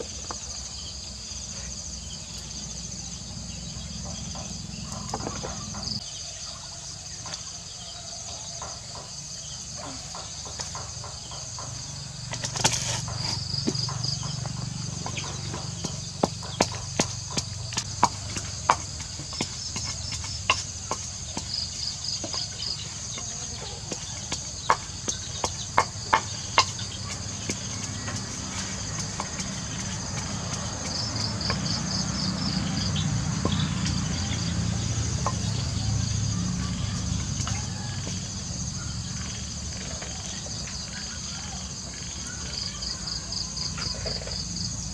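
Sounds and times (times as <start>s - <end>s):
insects chirping: 0.0s - 44.9s
wooden pestle pounding in mortar: 8.4s - 38.8s.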